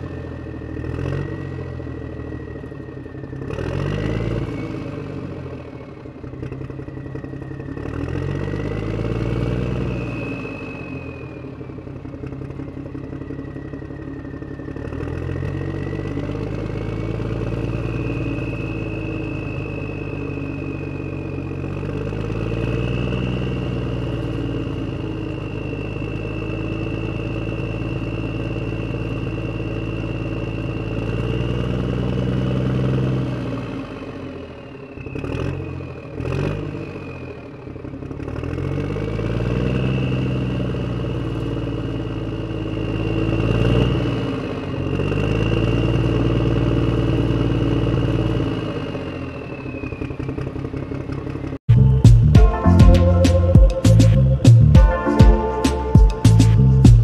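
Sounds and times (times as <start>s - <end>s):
engine revving: 0.0s - 57.0s
high whine: 51.7s - 57.0s.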